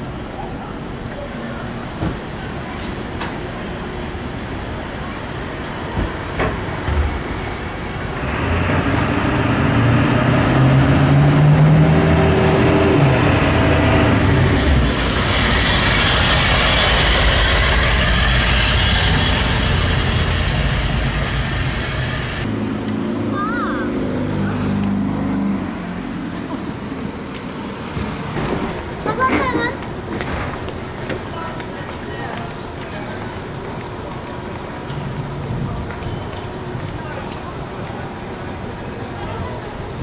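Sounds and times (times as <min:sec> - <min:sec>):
street traffic: 0:00.0 - 0:40.0.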